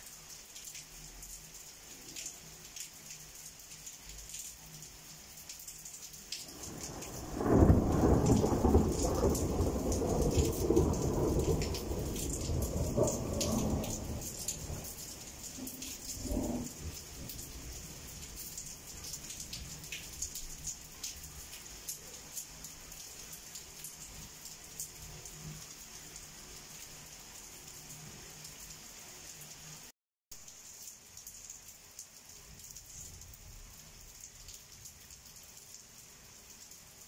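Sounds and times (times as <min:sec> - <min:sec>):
rain pattering: 0:00.0 - 0:37.0
thunder rumbling: 0:06.5 - 0:17.4.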